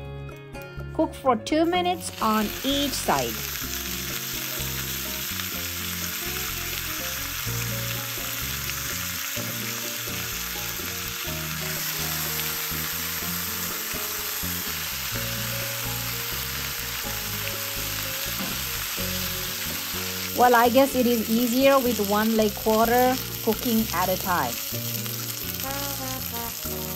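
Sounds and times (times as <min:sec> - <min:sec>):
chicken sizzling on grill pan: 0:02.1 - 0:26.9.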